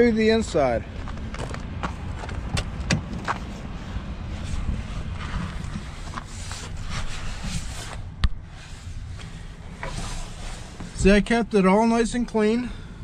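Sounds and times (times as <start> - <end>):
wind rumbling on microphone: 0.8 - 11.2.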